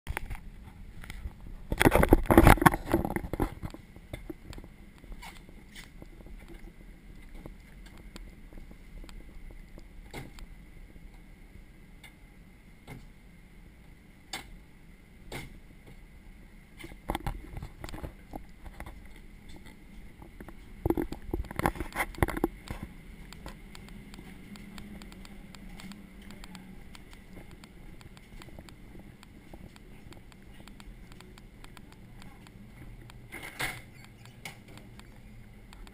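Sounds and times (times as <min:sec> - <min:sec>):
faint high whine: 0:00.1 - 0:35.9
low machinery hum: 0:00.1 - 0:35.9
light rapid ticks: 0:22.1 - 0:33.2, 0:34.0 - 0:35.9.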